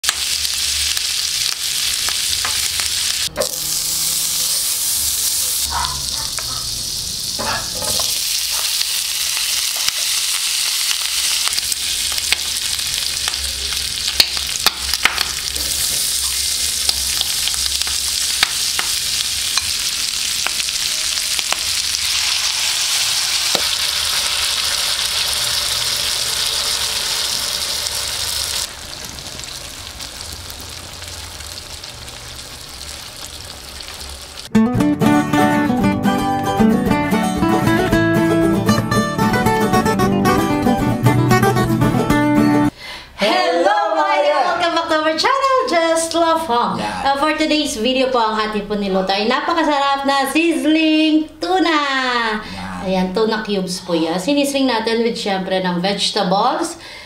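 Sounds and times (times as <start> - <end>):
food sizzling in hot oil: 0.0 - 34.5.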